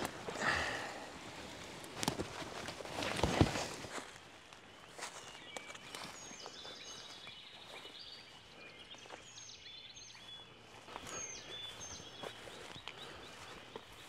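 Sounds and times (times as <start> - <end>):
footsteps through undergrowth: 0.0 - 14.0
songbirds singing: 0.0 - 14.0.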